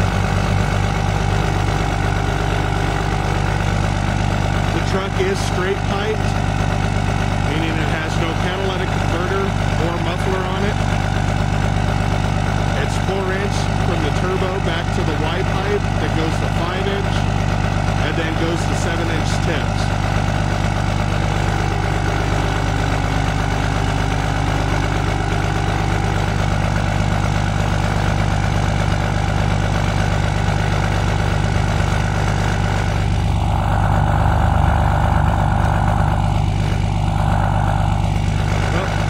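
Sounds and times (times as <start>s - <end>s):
diesel truck engine idling: 0.0s - 39.0s
broad rushing sound: 32.9s - 38.8s.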